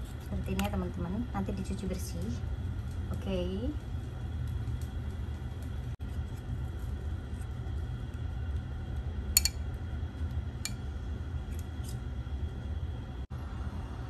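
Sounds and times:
low hum: 0.0 - 14.0
chopsticks clicking on a bowl: 9.4 - 9.6.

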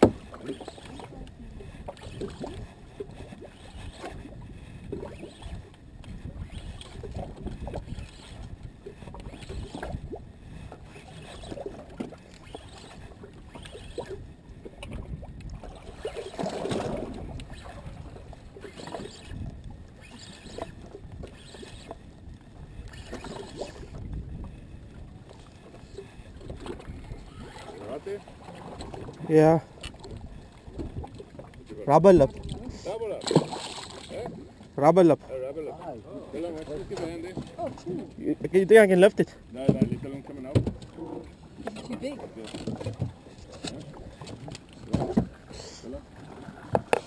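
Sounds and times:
water slapping against boat hull: 0.0 - 22.0, 25.3 - 34.7, 36.4 - 38.1, 39.5 - 47.0
wind buffeting microphone: 20.8 - 25.3.

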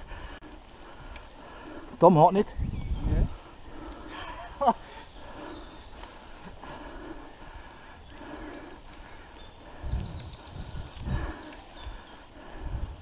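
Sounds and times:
songbirds singing: 0.0 - 13.0.

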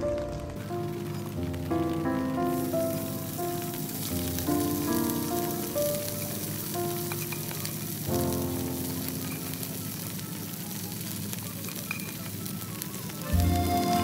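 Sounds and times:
slow background music chords: 0.0 - 9.3, 13.2 - 14.0
rice and garlic sizzling in pan: 0.0 - 14.0.

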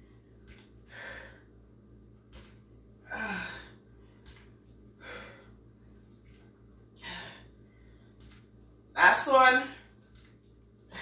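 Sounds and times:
woman breathing hard: 0.8 - 1.6, 4.9 - 5.7
woman grunting: 3.0 - 3.7.

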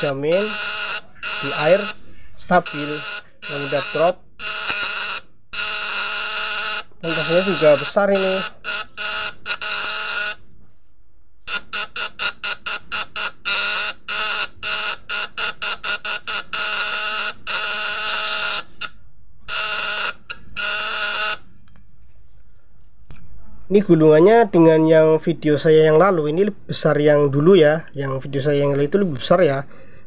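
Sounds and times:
electrical contact breaker buzzing: 0.0 - 10.4, 11.5 - 21.4.

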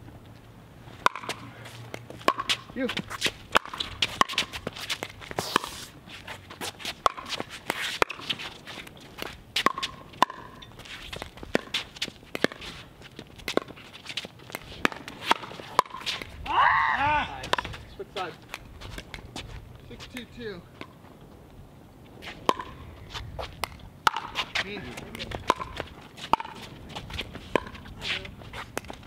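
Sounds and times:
footsteps shuffling: 0.0 - 16.5, 17.2 - 29.0
ball bouncing on hard court: 2.0 - 5.7, 9.6 - 10.6, 22.5 - 22.8, 23.6 - 26.7.

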